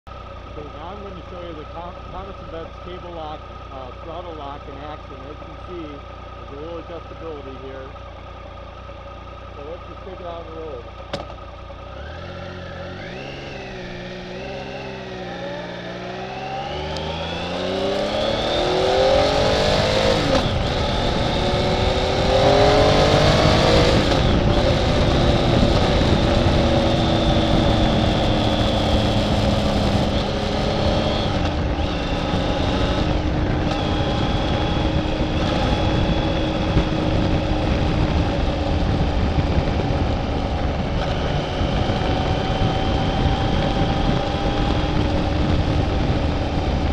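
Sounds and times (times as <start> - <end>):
motorcycle engine revving: 0.1 - 46.9
wind rushing over microphone: 12.1 - 46.9.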